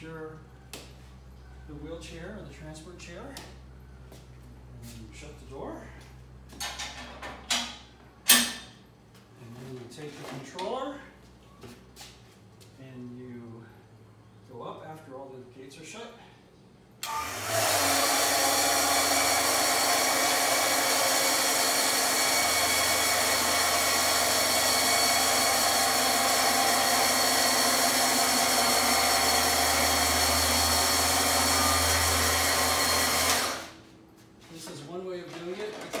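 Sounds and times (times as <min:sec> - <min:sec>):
electric lift motor running: 0:17.0 - 0:33.8.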